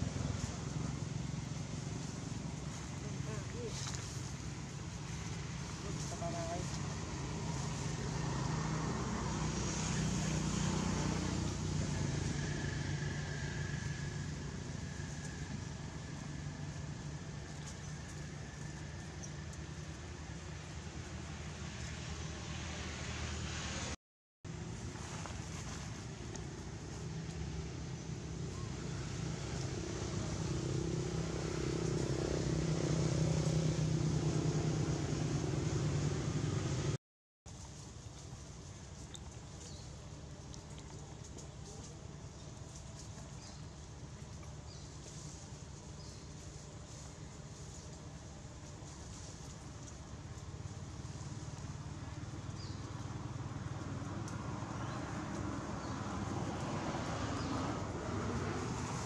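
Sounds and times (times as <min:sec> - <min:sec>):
vehicle engine running: 0:00.0 - 0:59.0.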